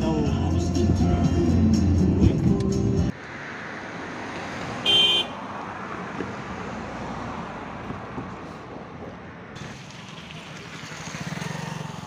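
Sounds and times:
background music: 0:00.0 - 0:03.1
wind: 0:00.0 - 0:12.0
vehicle horn honking: 0:04.8 - 0:05.4.

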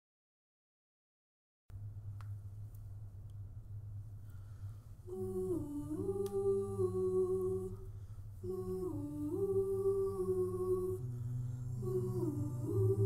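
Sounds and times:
steady low hum: 0:01.7 - 0:13.0
vocal group humming in harmony: 0:05.0 - 0:13.0.

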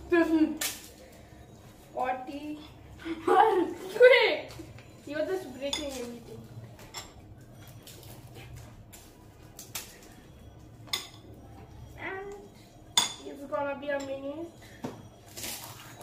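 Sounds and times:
crockery clinking: 0:04.7 - 0:08.1, 0:10.8 - 0:16.0.

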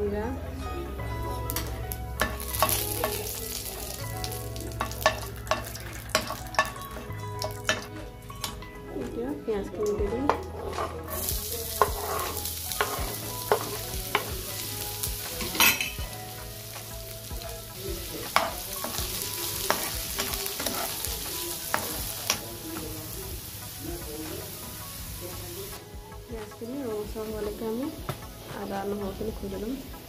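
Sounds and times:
onion sizzling in hot oil: 0:01.2 - 0:08.8, 0:09.8 - 0:30.0
metal spatula scraping pan: 0:10.3 - 0:14.3, 0:18.2 - 0:22.4.

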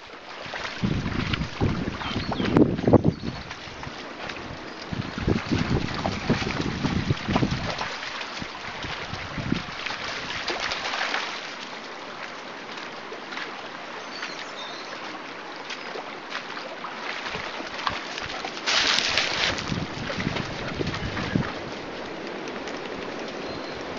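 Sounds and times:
stream running over stones: 0:00.0 - 0:23.9
wind buffeting microphone: 0:00.4 - 0:10.8, 0:17.2 - 0:23.9.

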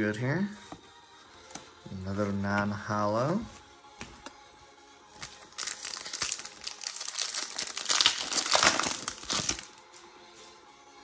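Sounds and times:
foil wrapper crinkling: 0:05.2 - 0:09.8.

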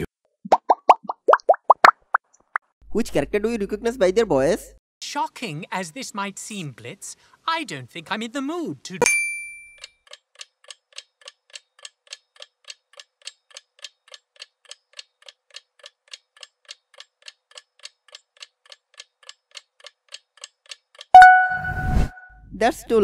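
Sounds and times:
clock ticking: 0:10.1 - 0:21.5.

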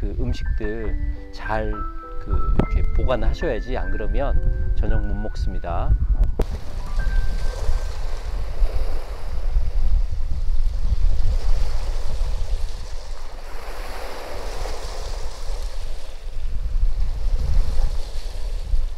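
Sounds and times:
wind rumbling on microphone: 0:00.0 - 0:18.9
small waves washing on shore: 0:06.4 - 0:18.9.

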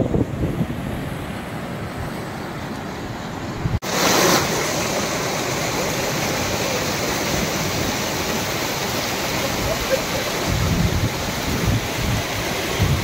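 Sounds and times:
stream rushing over rocks: 0:02.8 - 0:13.0.

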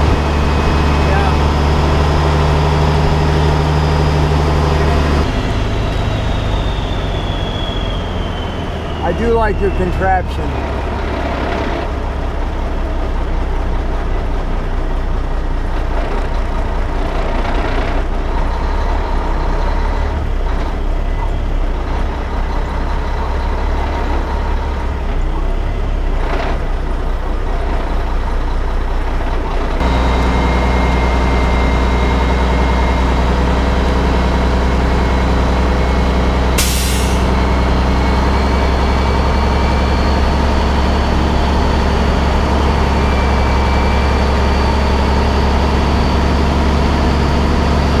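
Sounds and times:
diesel truck engine running: 0:00.0 - 0:48.0
air brake hiss: 0:36.6 - 0:37.3.

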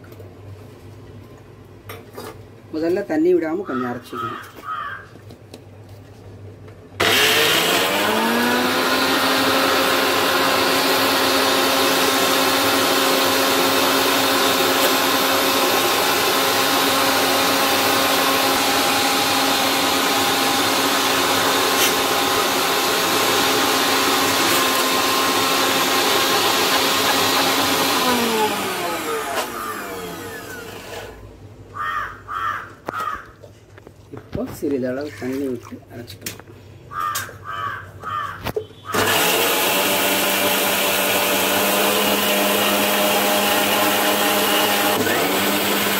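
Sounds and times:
electric mixer grinder motor whine: 0:07.0 - 0:31.2, 0:38.9 - 0:45.9.

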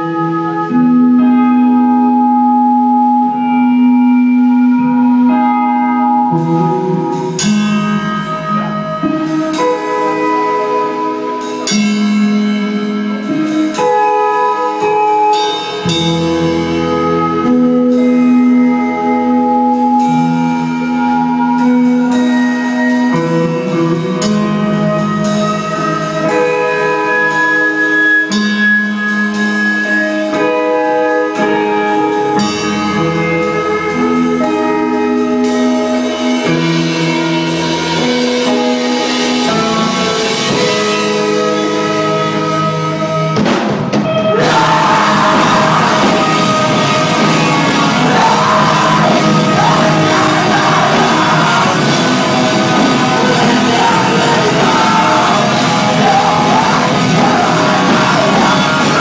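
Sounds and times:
electric guitars ringing chords: 0:00.0 - 0:59.0
drums and cymbal crashes: 0:43.2 - 0:59.0.

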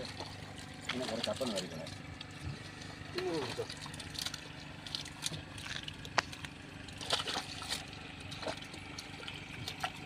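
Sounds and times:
hand net splashing in water: 0:02.6 - 0:10.0.

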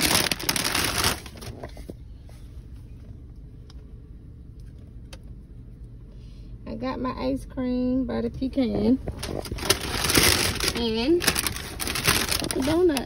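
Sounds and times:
paper bag rustling: 0:00.0 - 0:01.9, 0:09.0 - 0:13.0
low hum inside car: 0:00.0 - 0:13.0.

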